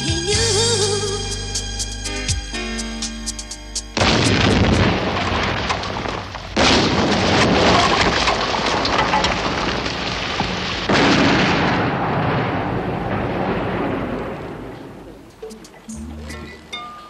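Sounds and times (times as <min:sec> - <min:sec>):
explosions: 0:04.0 - 0:16.8
rumbling crackling fire and debris: 0:04.0 - 0:17.0.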